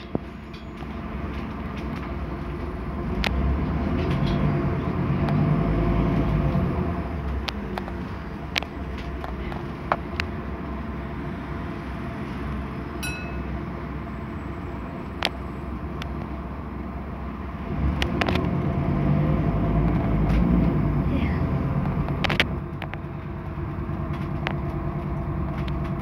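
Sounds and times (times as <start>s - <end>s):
bus diesel engine running: 0.0s - 26.0s
brief high tone: 13.0s - 13.6s.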